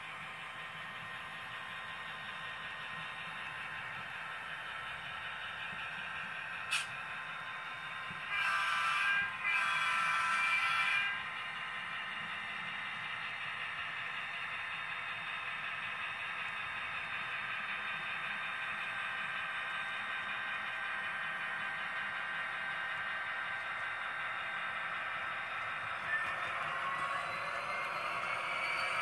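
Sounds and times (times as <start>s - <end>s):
model train diesel engine sound: 0.0s - 29.0s
wheels rolling on track: 0.0s - 29.0s.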